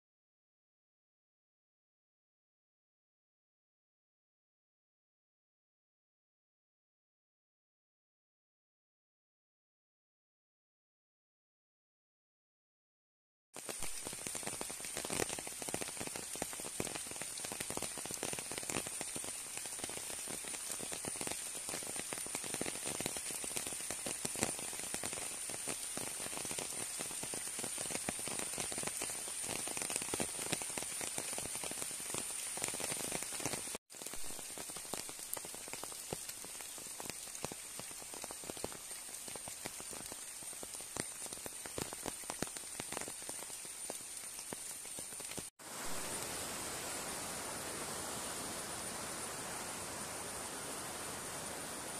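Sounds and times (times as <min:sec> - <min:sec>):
rain pattering on river: 0:13.6 - 0:51.9.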